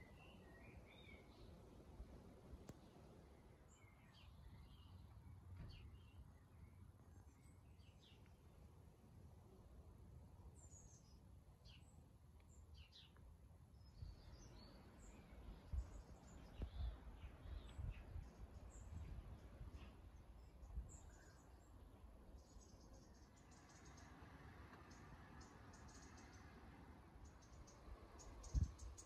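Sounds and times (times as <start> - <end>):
small birds chirping: 10.6 - 29.0.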